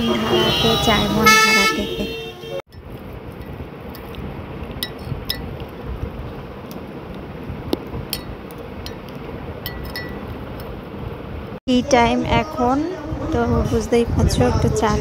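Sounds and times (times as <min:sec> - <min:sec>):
spoon clinking against glass: 0:09.6 - 0:10.2.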